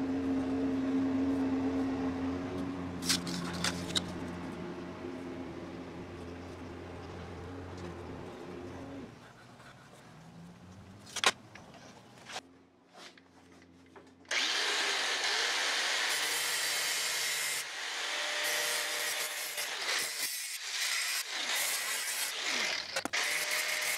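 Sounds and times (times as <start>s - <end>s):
angle grinder cutting metal: 14.3s - 23.9s.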